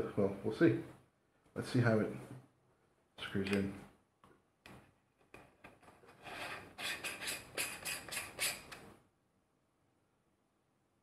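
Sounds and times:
filter threads scratchy rubs and clicks: 0:04.6 - 0:08.9.

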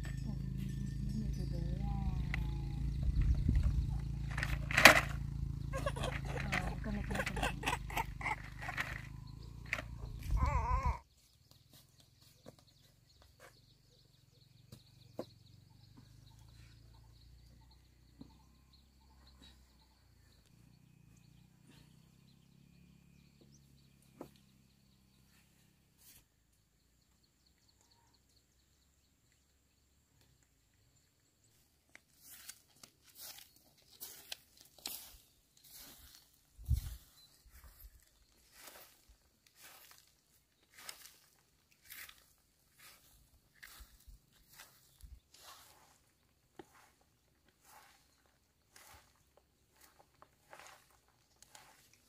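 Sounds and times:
crunching and rustling: 0:32.0 - 0:46.0, 0:47.6 - 0:52.0.

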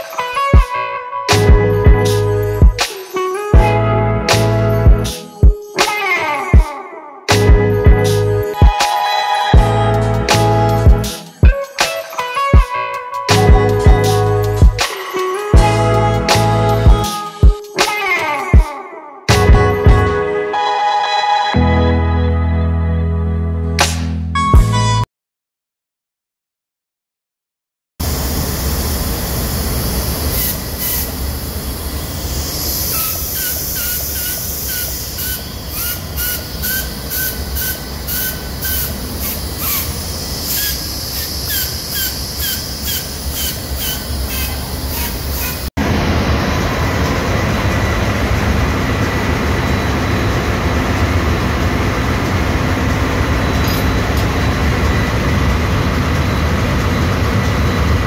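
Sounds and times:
engine room machinery drone: 0:28.0 - 0:58.0
compressed air hissing: 0:28.1 - 0:45.7
short squealing chirps: 0:30.3 - 0:31.1, 0:32.4 - 0:45.7.

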